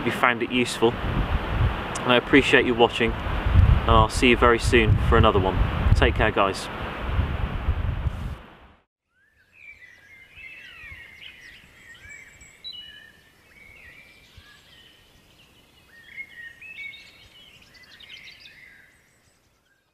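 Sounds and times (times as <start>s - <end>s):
songbirds singing: 9.0s - 19.9s.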